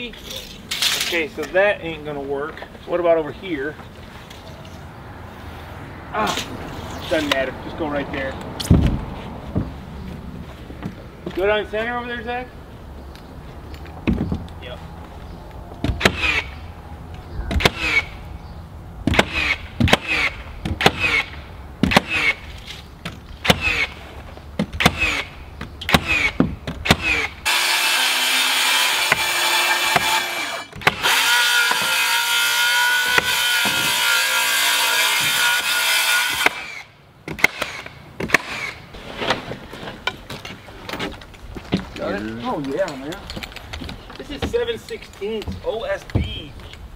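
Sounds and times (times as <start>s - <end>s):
nail guns firing: 15.9s - 16.5s, 17.5s - 18.1s, 19.1s - 22.4s, 23.4s - 24.0s, 24.6s - 25.3s, 25.9s - 38.8s
power saw cutting with whine: 27.0s - 36.9s.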